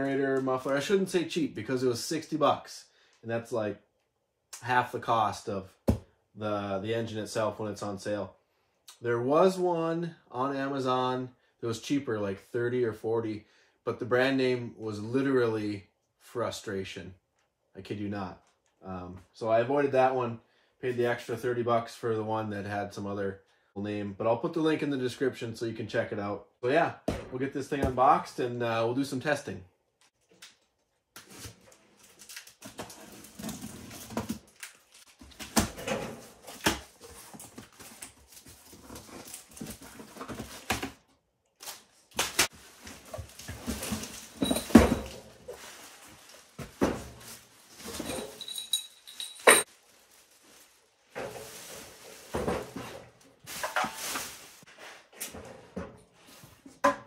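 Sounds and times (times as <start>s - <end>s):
plastic wrap crinkling: 41.6s - 48.5s, 49.2s - 52.4s
cardboard flaps rustling: 42.1s - 48.1s.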